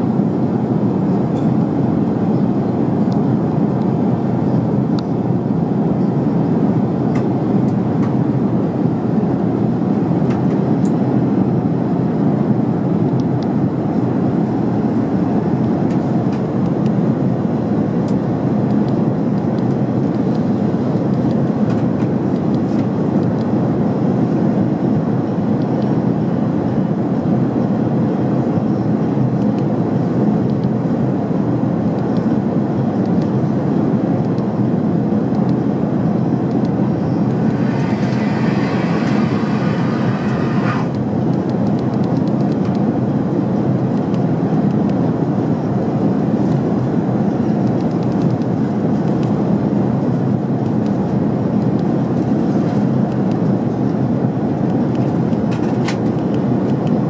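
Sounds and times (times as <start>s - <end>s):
airplane cabin rumble: 0.0s - 57.0s.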